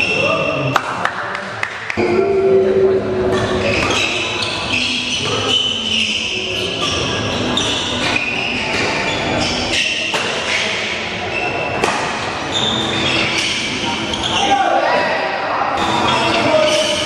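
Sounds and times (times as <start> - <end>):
shoes squeaking on court floor: 3.3 - 15.2, 15.8 - 17.0
rackets hitting shuttlecock: 9.8 - 11.0, 11.7 - 12.4.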